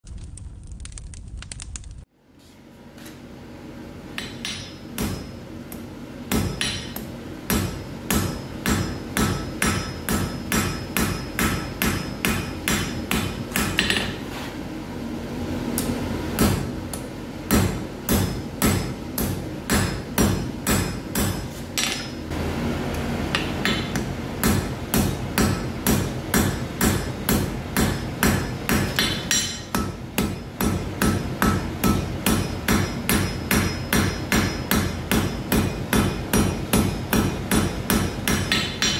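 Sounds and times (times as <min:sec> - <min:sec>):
hammer striking iron on anvil: 0:04.2 - 0:14.2, 0:16.4 - 0:22.3, 0:23.3 - 0:38.9.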